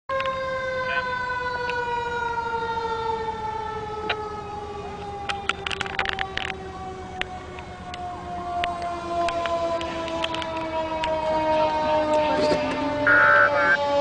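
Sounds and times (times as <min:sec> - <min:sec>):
fire engine siren: 0:00.1 - 0:14.0.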